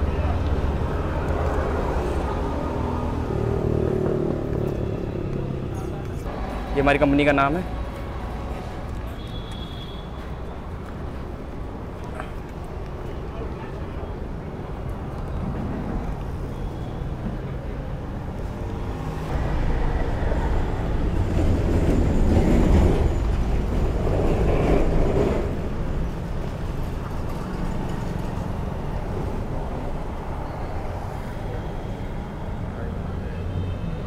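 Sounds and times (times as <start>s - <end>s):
vehicle passing close by: 0.0s - 8.9s
traffic rumble: 0.0s - 34.0s.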